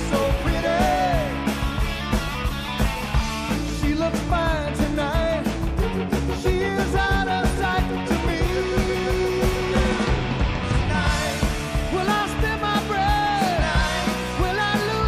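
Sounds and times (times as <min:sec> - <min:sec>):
bending lead guitar line: 0:00.0 - 0:15.0
rock band playing live: 0:00.0 - 0:15.0.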